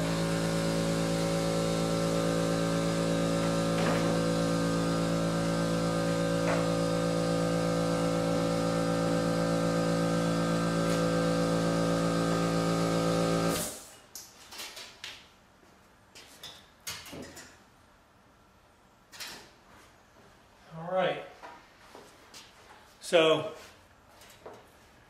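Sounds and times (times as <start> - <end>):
electric machine humming: 0.0 - 13.8.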